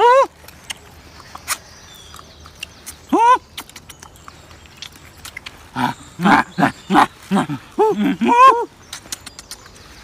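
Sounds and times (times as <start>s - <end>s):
wet smacking and chewing: 0.4s - 6.7s, 8.8s - 9.9s
high vocal call: 5.5s - 8.9s.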